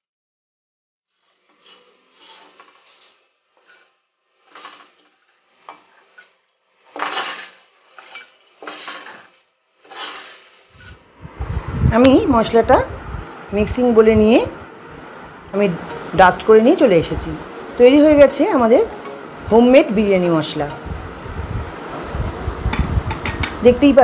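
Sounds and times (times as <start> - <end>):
spatula scraping spices in wok: 1.2 - 11.0.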